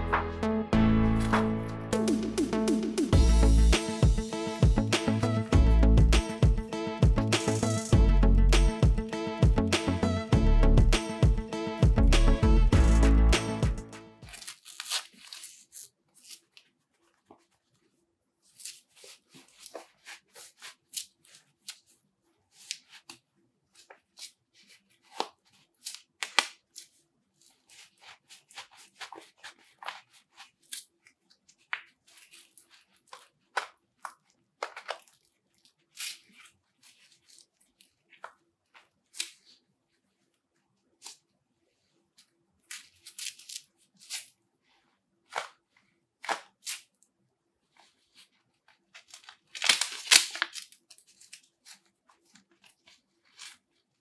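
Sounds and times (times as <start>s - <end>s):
gloves rustling: 6.0s - 8.0s, 12.7s - 54.0s
hook-and-loop strap ripping: 7.3s - 8.0s, 14.2s - 17.4s, 23.8s - 39.6s, 42.6s - 44.4s, 49.0s - 53.8s.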